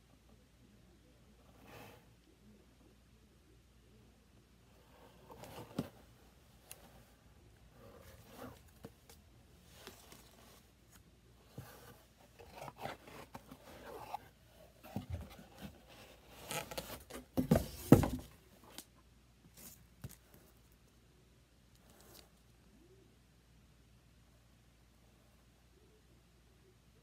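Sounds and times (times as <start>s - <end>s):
paper and cardboard rustling: 7.8s - 18.7s.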